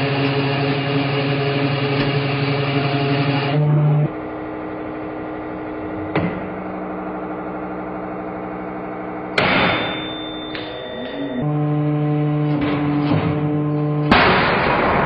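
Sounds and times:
hydraulic press humming: 0.0 - 15.0
high ringing tone: 8.2 - 12.6.

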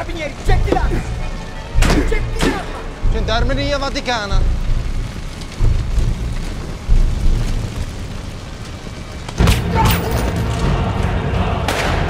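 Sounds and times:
film score music: 0.0 - 12.0
large fire rumbling: 0.0 - 12.0
sharp crack: 11.6 - 12.0.

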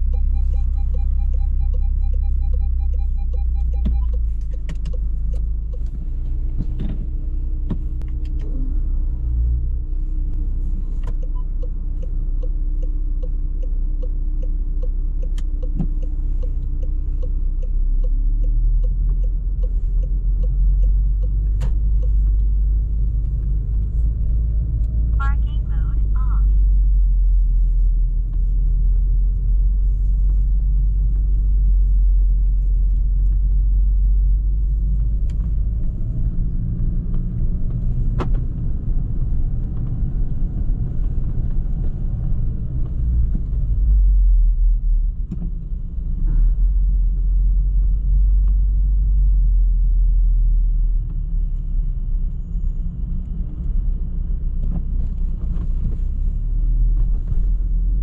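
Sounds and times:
car engine low rumble: 0.0 - 58.0.

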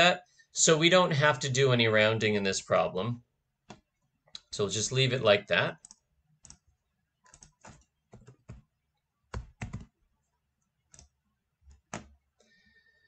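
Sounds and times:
keyboard keystrokes: 7.3 - 8.7, 9.3 - 9.9.

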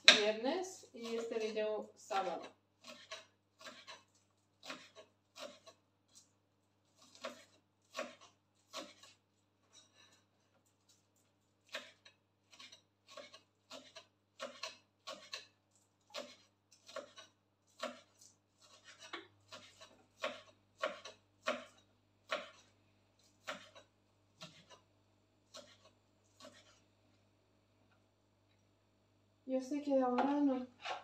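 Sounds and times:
knife chopping on wooden board: 0.0 - 0.4, 2.2 - 6.2, 7.0 - 9.2, 11.6 - 24.8, 25.5 - 26.8.

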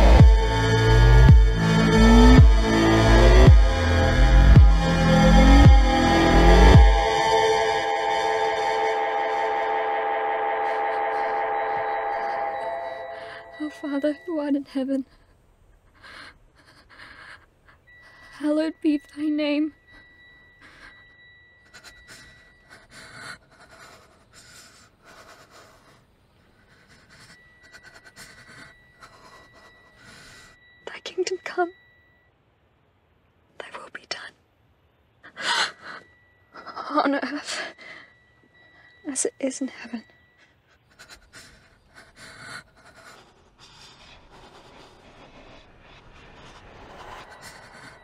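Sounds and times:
faint high tone: 6.3 - 15.1
person breathing hard: 15.2 - 18.4, 20.6 - 30.6, 40.5 - 45.6.

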